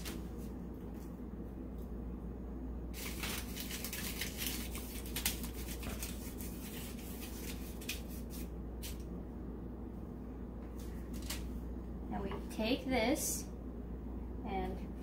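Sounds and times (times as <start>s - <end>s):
steady low hum: 0.0s - 15.0s
aluminium foil crinkling: 2.9s - 9.0s.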